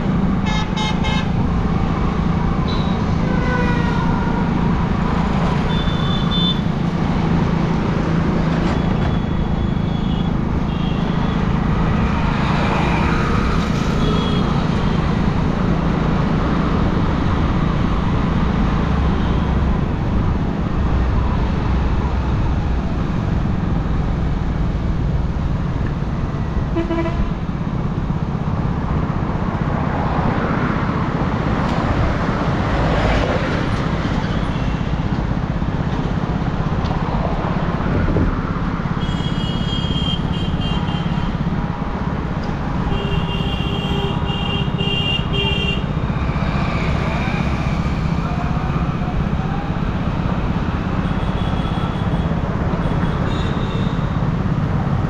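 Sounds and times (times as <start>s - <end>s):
road and wind noise: 0.0s - 55.0s
vehicle horns tooting: 0.4s - 1.3s, 5.7s - 6.7s, 39.0s - 41.4s, 42.9s - 45.9s, 51.0s - 54.2s.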